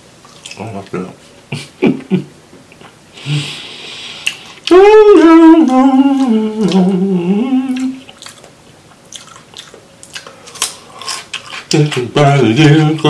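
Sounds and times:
man humming a tune: 0:04.6 - 0:08.1, 0:11.7 - 0:13.0.

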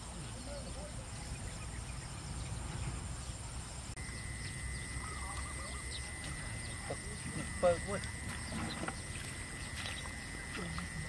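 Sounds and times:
insects buzzing high-pitched: 0:00.0 - 0:11.0
lower insect tone: 0:00.0 - 0:11.0
faint bird chirps: 0:04.0 - 0:11.0.

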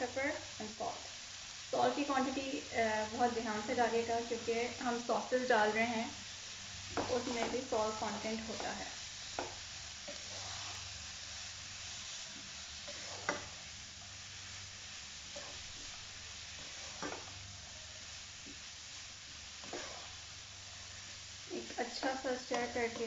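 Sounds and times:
food sizzling in a wok: 0:00.0 - 0:23.0.

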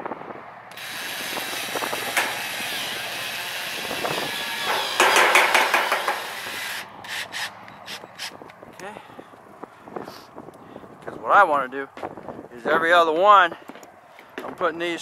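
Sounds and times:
cordless drill driving screw into metal: 0:00.7 - 0:08.4
sharp clicks: 0:02.0 - 0:02.5.

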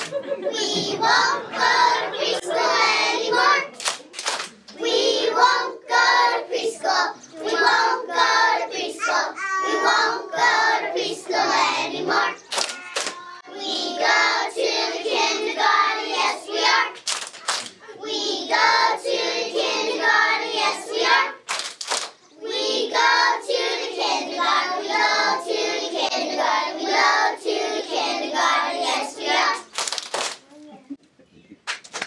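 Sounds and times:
sharp claps: 0:00.0 - 0:00.2, 0:03.7 - 0:04.8, 0:12.5 - 0:13.2, 0:17.0 - 0:17.8, 0:21.4 - 0:22.2, 0:29.6 - 0:30.4, 0:31.6 - 0:32.0
children singing: 0:00.0 - 0:03.9, 0:04.8 - 0:21.4, 0:22.4 - 0:29.7.

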